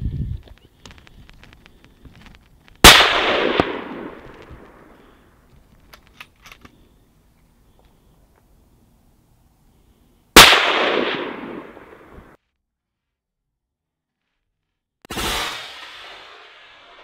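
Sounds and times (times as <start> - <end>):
rifle shot echoing: 2.8 - 5.2, 10.4 - 12.4.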